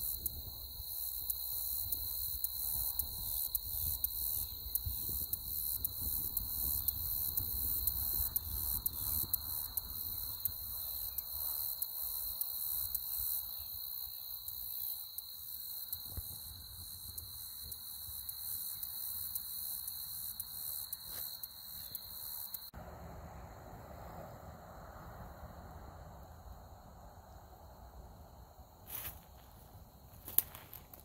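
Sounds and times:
high-pitched insect trill: 0.0 - 22.7
wind rumble on microphone: 1.7 - 11.2.

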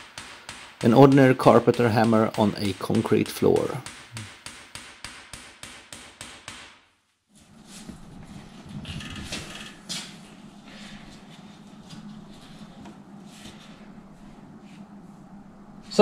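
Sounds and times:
low steady hum: 0.0 - 4.5, 7.3 - 16.0
hammer striking sheet metal: 0.0 - 7.0.

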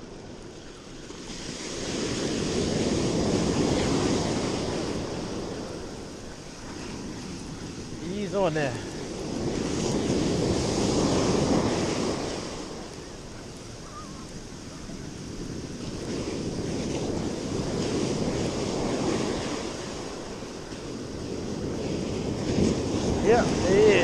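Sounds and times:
ocean surf breaking on beach: 0.0 - 24.0.

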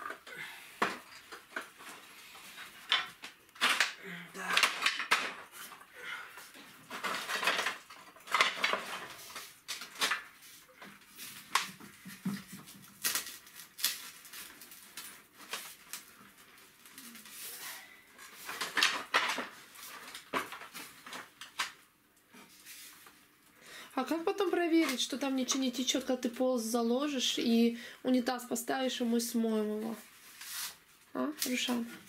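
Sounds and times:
plastic pipes clicking and scraping: 0.0 - 17.4, 18.1 - 23.2.

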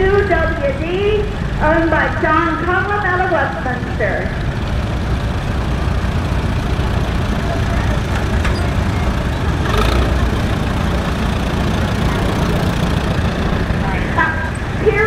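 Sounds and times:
tractor engine running: 0.0 - 15.0
rush of noise: 3.6 - 15.0.

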